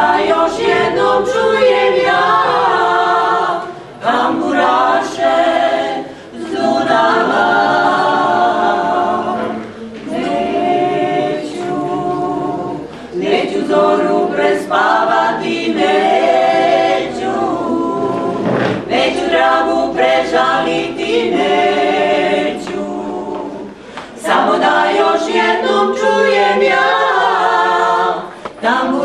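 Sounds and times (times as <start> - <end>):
women singing a cappella: 0.0 - 29.0
singers breathing: 6.0 - 6.4, 12.9 - 13.2, 23.7 - 24.2.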